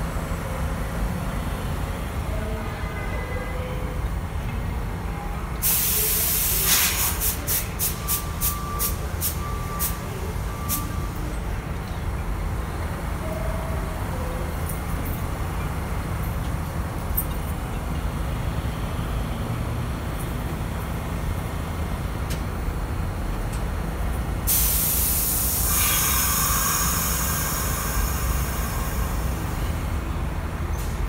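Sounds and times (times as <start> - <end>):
train low rumble: 0.0 - 31.0
short hisses: 5.6 - 7.6
compressed-air hiss from train: 5.6 - 10.0, 24.4 - 30.0
faint short beeps: 7.8 - 11.3.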